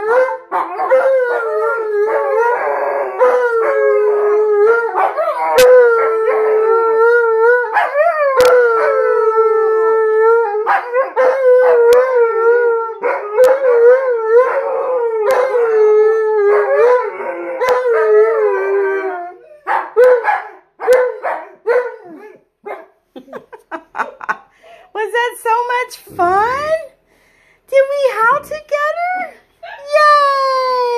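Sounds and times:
dogs howling together: 0:00.0 - 0:22.4.

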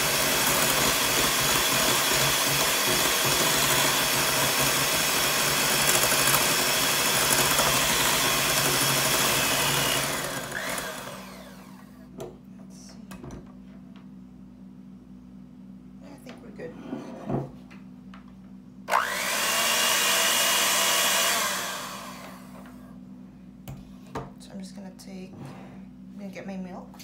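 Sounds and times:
electric hand mixer whipping: 0:00.0 - 0:12.0, 0:18.9 - 0:22.8.

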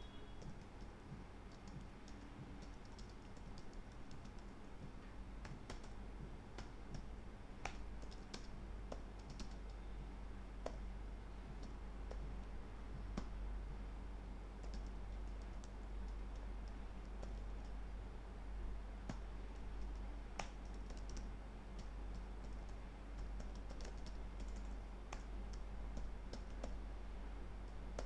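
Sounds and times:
typing on a computer keyboard: 0:01.5 - 0:04.6, 0:05.4 - 0:06.0, 0:06.6 - 0:09.8, 0:14.6 - 0:17.8, 0:19.1 - 0:26.8.

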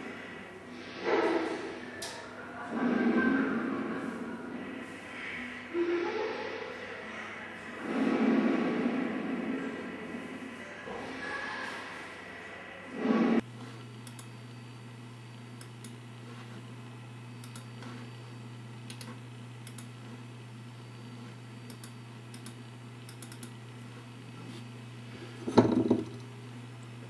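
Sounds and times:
steady low hum: 0:12.8 - 0:27.0
light keyboard-like clicks: 0:17.4 - 0:17.8.

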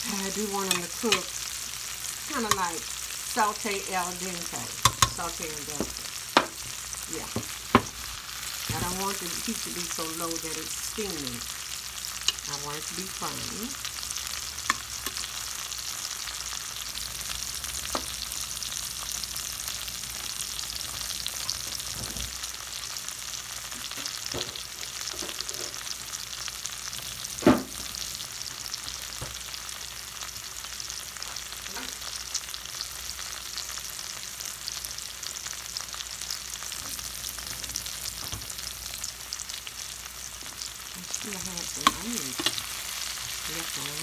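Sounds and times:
vegetables sizzling in oil: 0:00.0 - 0:44.0.

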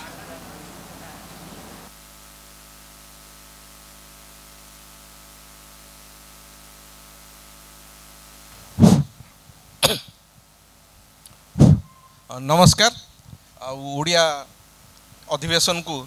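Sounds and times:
microphone hiss and mains hum: 0:00.0 - 0:16.0
thumps on microphone: 0:08.8 - 0:09.3, 0:11.6 - 0:11.9.

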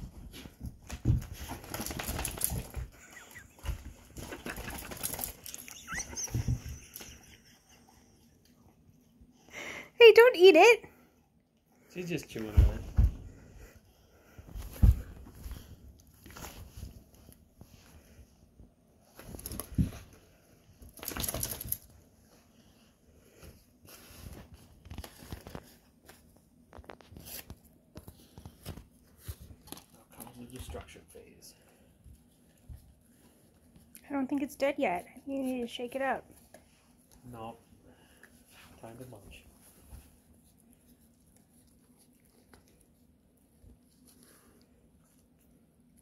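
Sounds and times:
dog paws scrabbling: 0:00.0 - 0:07.2, 0:20.8 - 0:22.0
high toy squeaks: 0:05.6 - 0:06.8
dog pouncing thumps: 0:12.5 - 0:13.4.

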